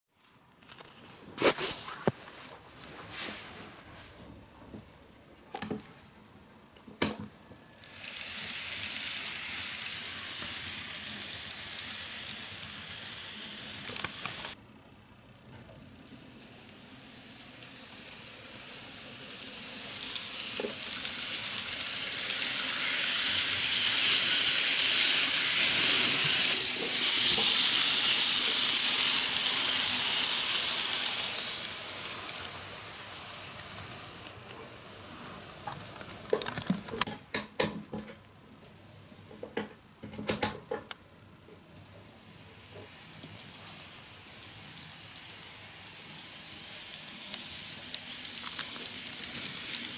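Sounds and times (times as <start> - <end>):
model train wheels and motor rattling: 6.9 - 38.1, 41.6 - 49.9.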